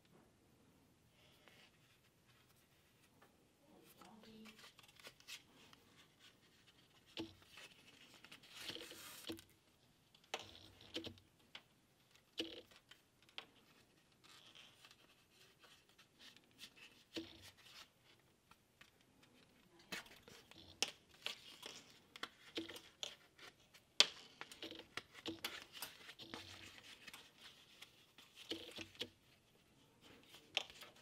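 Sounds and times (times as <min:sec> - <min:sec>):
thread pulled through leather: 0:04.0 - 0:09.6, 0:12.2 - 0:31.0.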